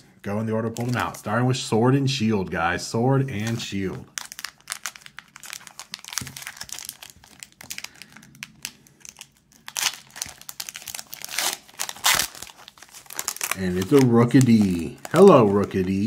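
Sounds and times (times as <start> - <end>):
foil wrapper crinkling: 3.4 - 16.0
foil wrapper tearing: 3.4 - 16.0.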